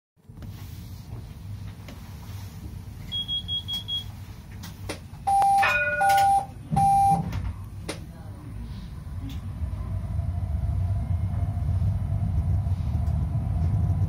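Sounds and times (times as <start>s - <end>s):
tram humming at rest: 0.4s - 14.0s
loud long beeps: 5.3s - 7.2s
short high beeps: 5.3s - 7.2s.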